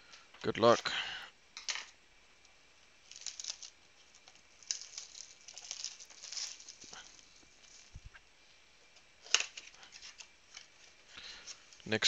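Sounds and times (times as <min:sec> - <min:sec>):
plastic wrap tearing and crinkling: 0:03.0 - 0:08.2.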